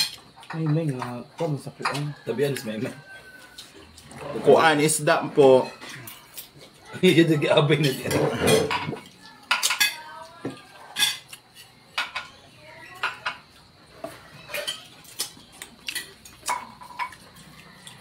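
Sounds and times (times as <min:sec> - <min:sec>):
cutlery clinking on plates: 0:00.0 - 0:03.8, 0:07.7 - 0:18.0.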